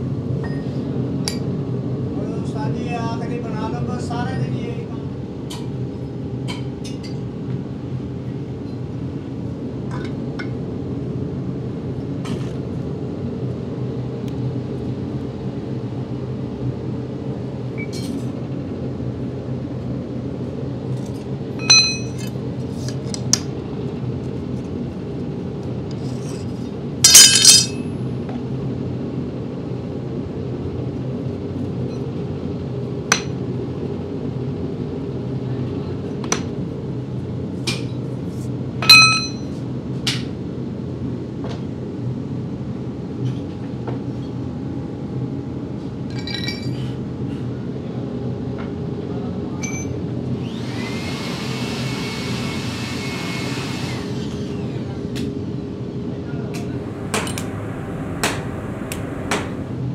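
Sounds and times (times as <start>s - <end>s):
steady low hum: 27.0s - 28.0s, 56.5s - 59.9s
metal clinks from hand tools: 27.1s - 27.8s.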